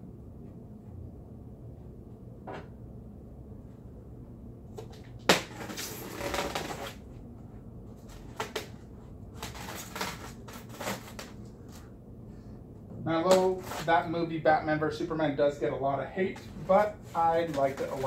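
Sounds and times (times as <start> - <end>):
cardboard scraping and rustling: 5.4 - 7.0, 8.0 - 11.9, 16.3 - 18.0.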